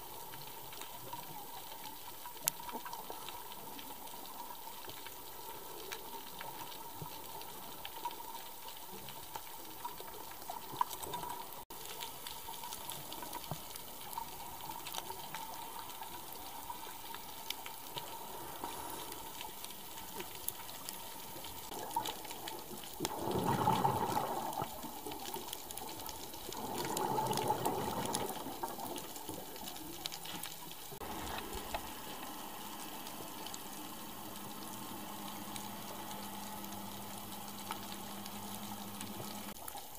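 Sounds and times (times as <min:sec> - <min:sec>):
crackling clicks: 0:00.0 - 0:39.9
rushing bubbles: 0:09.7 - 0:39.9
underwater hiss: 0:14.1 - 0:39.6.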